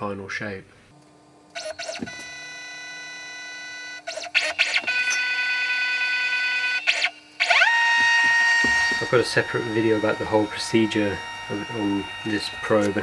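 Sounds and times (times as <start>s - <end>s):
stepper motors whining: 3.8s - 13.0s.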